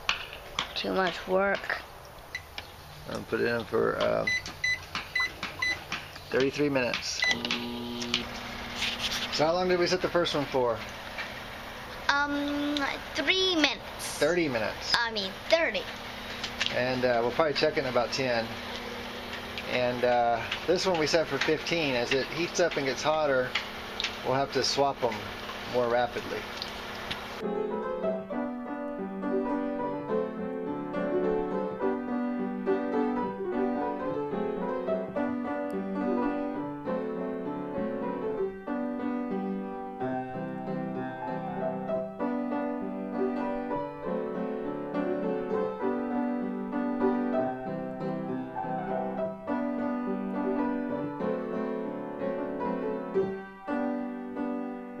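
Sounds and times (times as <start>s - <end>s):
piano music: 16.7s - 26.5s, 27.4s - 55.0s.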